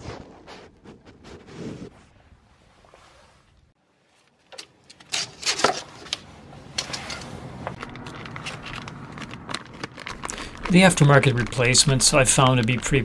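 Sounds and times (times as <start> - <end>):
plastic bag crinkling: 7.7 - 13.0.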